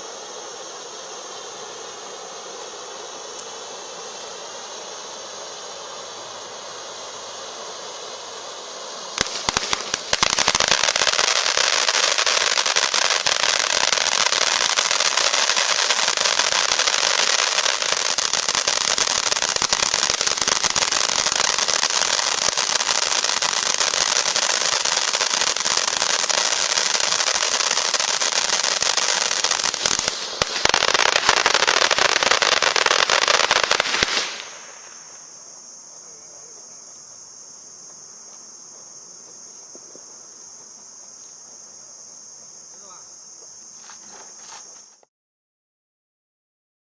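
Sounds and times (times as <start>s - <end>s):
firework crackling: 0.0s - 36.5s
firework sparks hissing: 0.0s - 36.5s, 41.7s - 45.1s.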